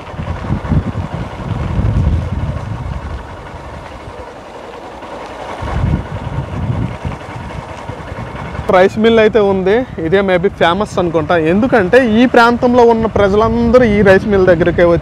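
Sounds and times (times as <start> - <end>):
wind buffeting on microphone: 0.0 - 4.4, 5.4 - 15.0
motorbike engine running: 0.0 - 15.0.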